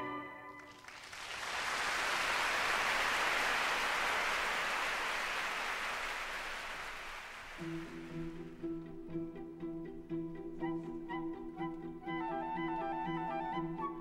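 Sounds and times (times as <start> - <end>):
audience applauding: 0.6 - 8.6.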